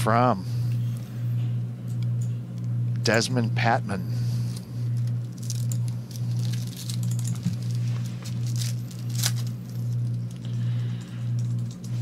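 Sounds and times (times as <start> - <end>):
steady low hum: 0.0 - 12.0
foil wrappers crinkling and tearing: 4.2 - 10.5.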